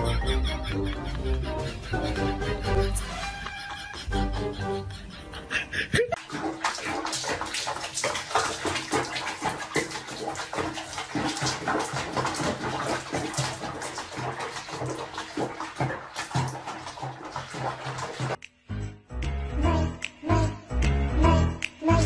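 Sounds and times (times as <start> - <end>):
music: 0.0 - 5.7, 18.4 - 22.0
water splashing in a basin: 6.2 - 18.5.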